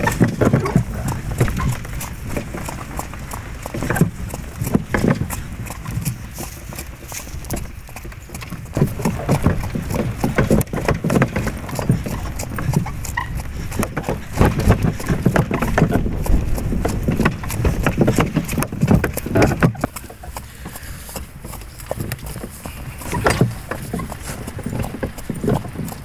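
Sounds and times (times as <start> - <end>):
cart harness rattling: 0.0 - 4.1, 23.0 - 25.1
horse hooves clip-clopping on snow: 0.0 - 26.0.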